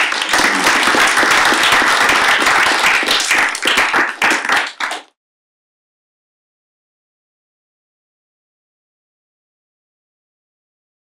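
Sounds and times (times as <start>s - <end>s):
audience applauding: 0.0s - 5.1s.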